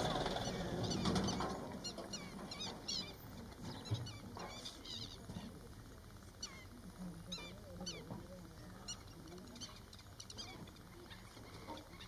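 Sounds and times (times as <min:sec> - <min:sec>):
birds giving sharp alarm calls: 0:06.3 - 0:08.1.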